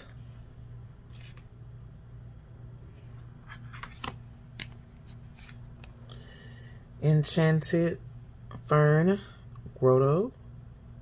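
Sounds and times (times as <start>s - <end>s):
cards being handled: 1.0s - 1.6s, 3.1s - 6.1s.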